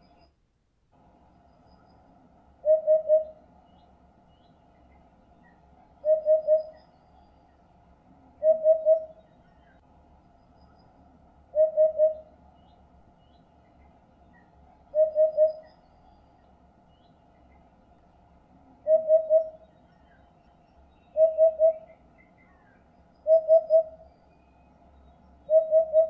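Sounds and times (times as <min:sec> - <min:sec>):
hoopoe hooting song: 0:02.6 - 0:03.4, 0:08.4 - 0:09.1, 0:11.6 - 0:12.3, 0:18.8 - 0:19.6, 0:21.2 - 0:21.9.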